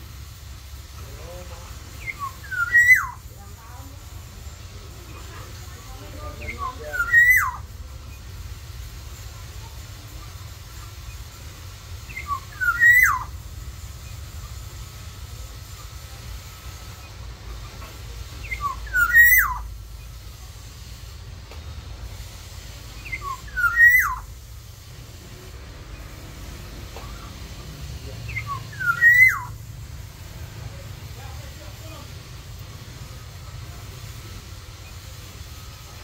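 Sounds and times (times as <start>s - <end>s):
oriole fluty whistling: 1.9s - 3.3s, 6.3s - 7.7s, 12.1s - 13.4s, 18.4s - 19.7s, 23.0s - 24.3s, 28.2s - 29.6s.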